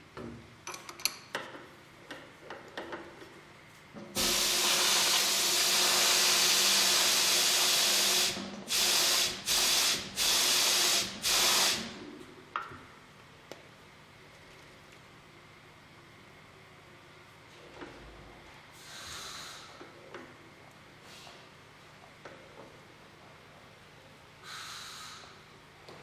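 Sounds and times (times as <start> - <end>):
pressurized jet hissing: 4.2 - 11.9.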